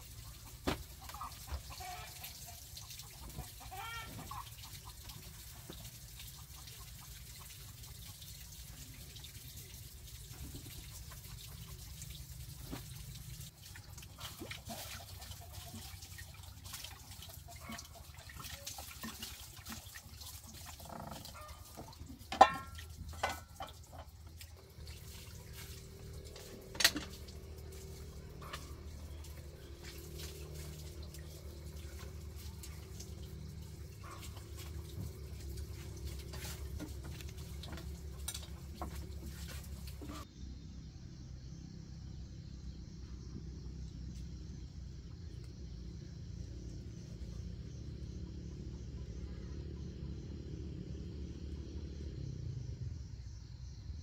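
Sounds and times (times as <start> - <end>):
water sloshing in a basin: 0.0 - 40.3.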